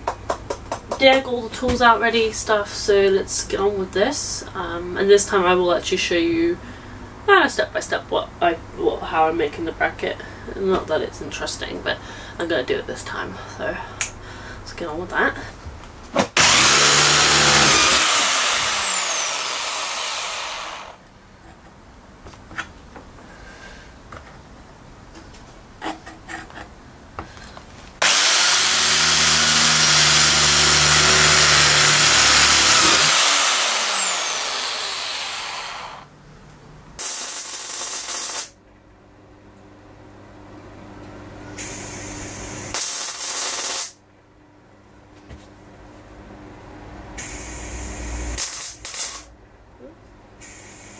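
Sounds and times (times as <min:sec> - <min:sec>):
electric drill drilling steel: 0:16.4 - 0:21.0, 0:28.0 - 0:36.1.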